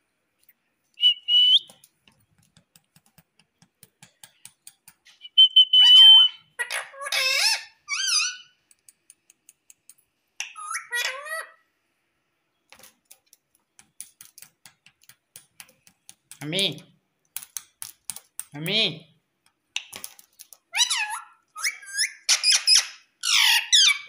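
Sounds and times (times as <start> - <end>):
parakeet whistling and calling: 1.0 - 1.7, 5.1 - 8.5, 10.5 - 11.5, 20.7 - 24.0
faint clicks: 8.6 - 10.1.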